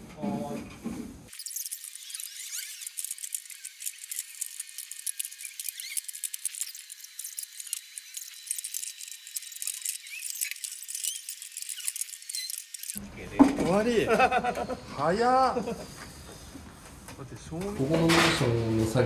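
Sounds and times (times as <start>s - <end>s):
sped-up squeaky chirps and clicks: 1.3s - 13.0s.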